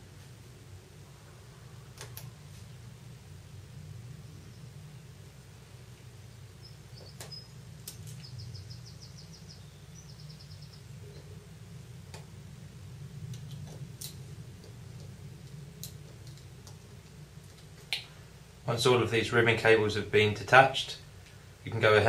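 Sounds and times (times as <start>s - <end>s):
steady low hum: 0.0s - 22.0s
faint high-pitched chirps: 6.6s - 7.6s.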